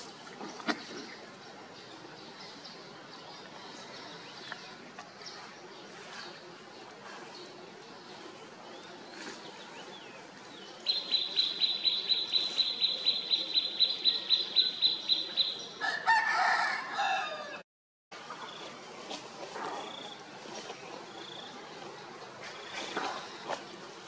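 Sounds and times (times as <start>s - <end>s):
rooster crowing: 15.8s - 17.6s.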